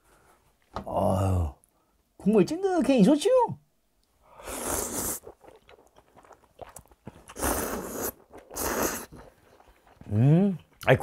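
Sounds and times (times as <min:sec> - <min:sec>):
faint chewing: 0:04.0 - 0:11.0
person slurping noodles: 0:04.4 - 0:10.2.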